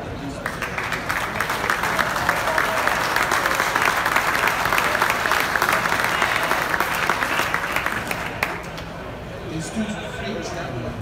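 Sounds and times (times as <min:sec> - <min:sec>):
audience applauding: 0:00.4 - 0:08.9.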